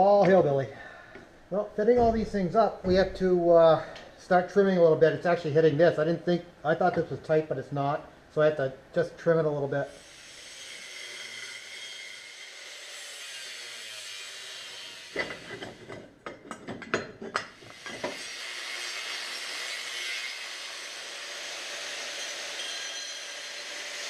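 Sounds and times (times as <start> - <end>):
steady background hiss: 0.0 - 22.1
metal clanks and knocks: 1.8 - 3.4, 15.2 - 18.2.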